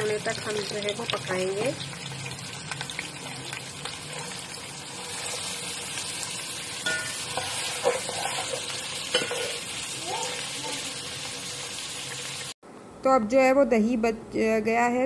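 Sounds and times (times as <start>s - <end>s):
onions sizzling in hot oil: 0.0s - 12.6s
metal spoon clinking on pot: 6.8s - 9.6s.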